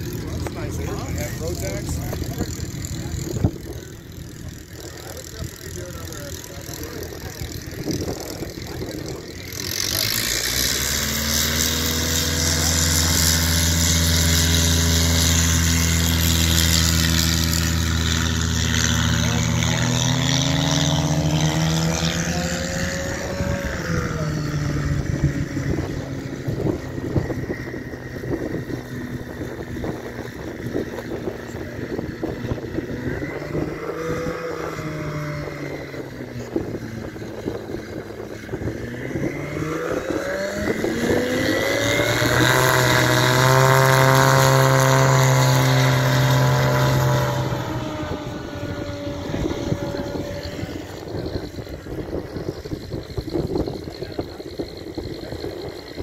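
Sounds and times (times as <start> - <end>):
light aircraft engine and propeller: 0.0 - 56.0
wind rumble on microphone: 0.0 - 56.0.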